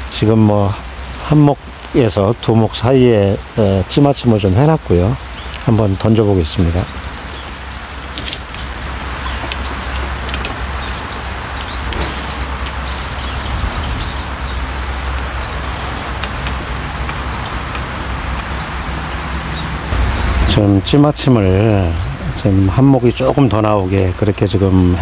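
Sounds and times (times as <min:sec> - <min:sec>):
light rain hiss: 0:00.0 - 0:25.0
small bird chirping: 0:04.5 - 0:20.4.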